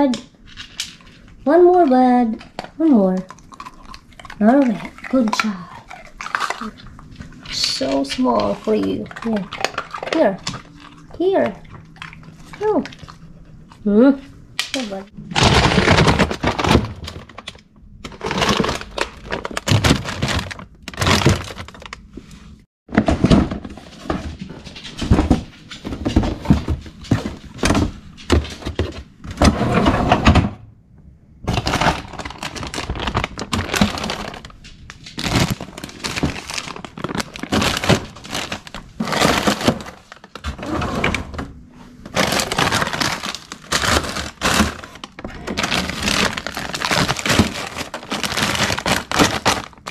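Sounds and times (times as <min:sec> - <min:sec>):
plastic bags crinkling: 0:02.9 - 0:11.1, 0:14.8 - 0:24.2, 0:31.4 - 0:41.1, 0:42.0 - 0:49.9
packages thudding against drawer: 0:15.3 - 0:17.5, 0:42.1 - 0:49.9.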